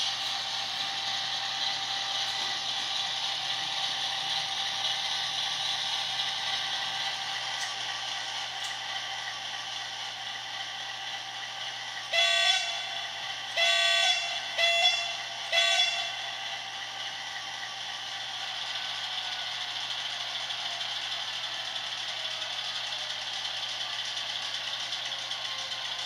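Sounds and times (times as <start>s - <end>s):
diesel engine running: 0.0s - 26.0s
locomotive horn blasts: 12.1s - 16.3s.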